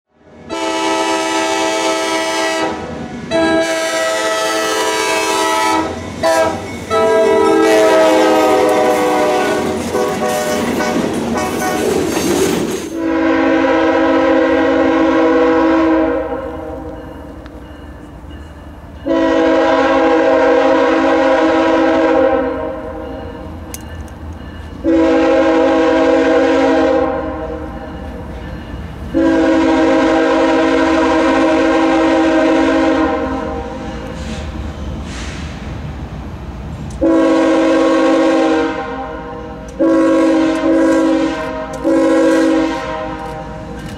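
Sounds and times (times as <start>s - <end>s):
diesel locomotive air horn: 0.4s - 12.0s, 13.0s - 17.1s, 19.0s - 23.1s, 24.8s - 27.9s, 29.1s - 34.5s, 37.0s - 43.9s
train wheels clattering on rails: 5.9s - 13.1s, 23.0s - 25.0s, 39.6s - 43.9s.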